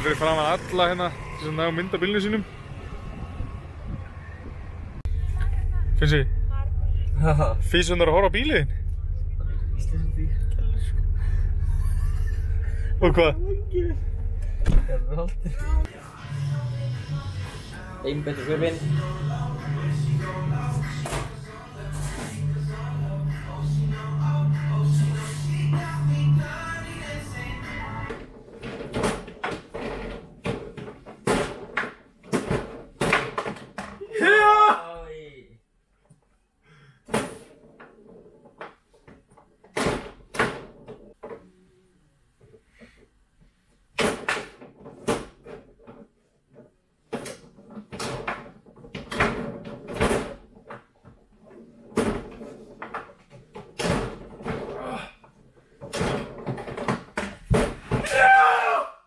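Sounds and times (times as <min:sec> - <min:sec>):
table football ball and rods clacking: 0:44.0 - 0:54.7.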